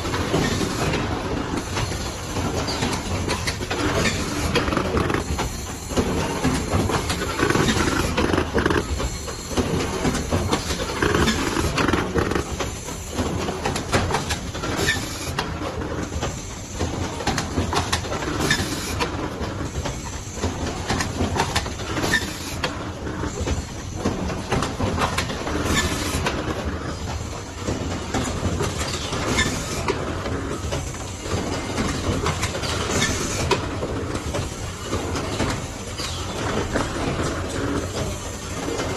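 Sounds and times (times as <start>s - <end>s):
box-forming machine clattering: 1.8s - 14.4s
mechanical clicks and knocks: 6.4s - 9.0s.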